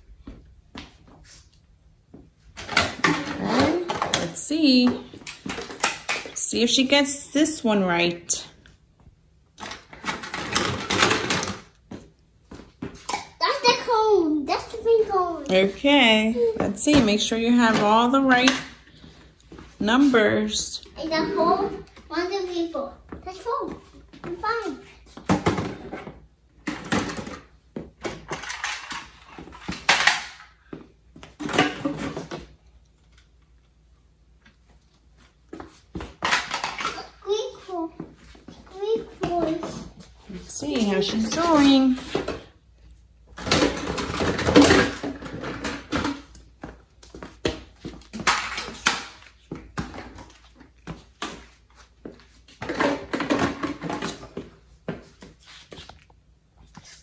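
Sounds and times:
plastic toys clattering: 5.2s - 6.4s, 9.6s - 11.8s, 26.6s - 30.5s, 36.2s - 37.2s, 43.4s - 46.3s, 48.1s - 49.2s, 52.6s - 54.3s.

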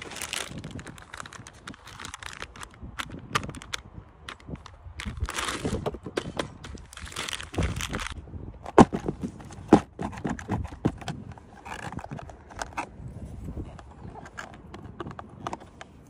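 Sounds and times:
plastic packaging crinkling: 0.0s - 6.0s, 6.6s - 8.2s
plastic clicks and knocks: 8.0s - 12.9s, 13.8s - 16.0s.

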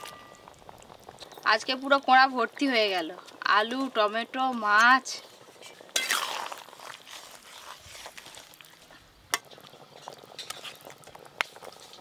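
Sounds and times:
spatula scraping metal pan: 5.6s - 6.5s.

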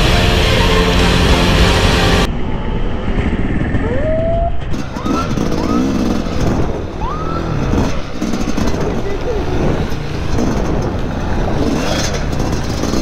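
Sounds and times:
dirt bike engine revving: 4.6s - 13.0s.

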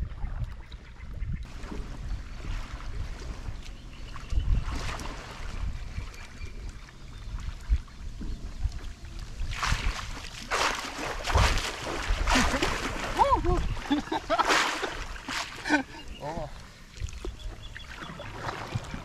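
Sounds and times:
wind rumbling on microphone: 0.0s - 19.0s
paddle strokes splashing in water: 1.5s - 19.0s
loud splashes: 9.5s - 16.4s.

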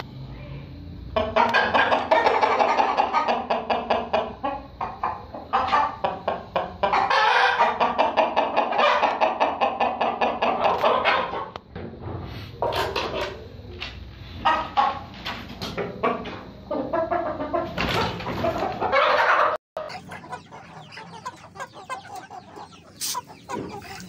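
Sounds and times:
rooster clucking: 1.2s - 11.5s, 14.3s - 15.1s, 16.0s - 24.0s.

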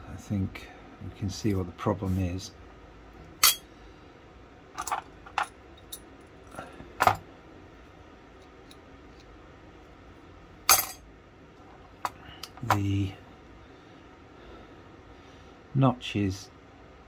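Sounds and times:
small metal parts clinking: 3.4s - 3.6s, 4.8s - 7.2s, 10.7s - 11.0s.

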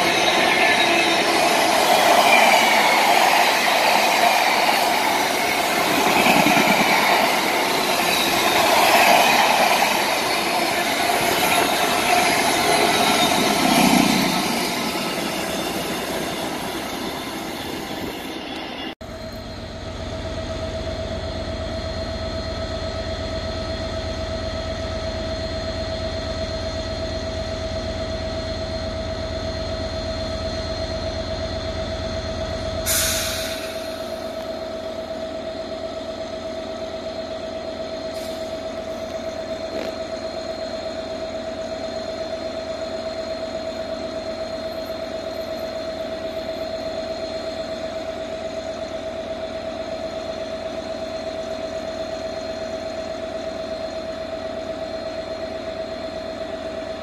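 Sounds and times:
locomotive idling hum: 0.0s - 57.0s
air hiss: 32.9s - 34.2s.

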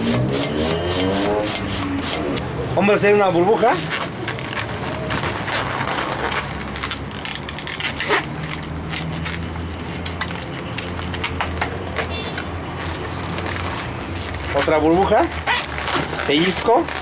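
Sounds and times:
balloon rubber squeaking: 3.5s - 17.0s.

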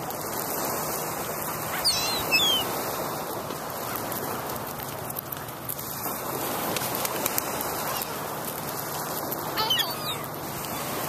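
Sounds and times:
flock of gulls calling: 1.6s - 3.0s, 7.8s - 8.3s, 9.5s - 11.0s
nearer gull call: 1.7s - 2.8s, 9.6s - 11.0s.

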